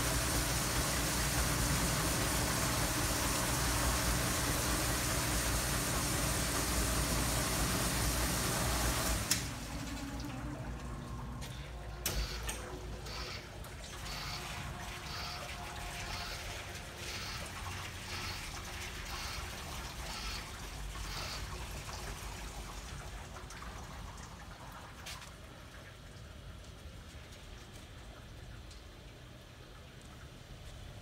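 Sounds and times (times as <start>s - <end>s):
dishwasher water spraying: 0.0s - 11.2s, 13.0s - 22.6s.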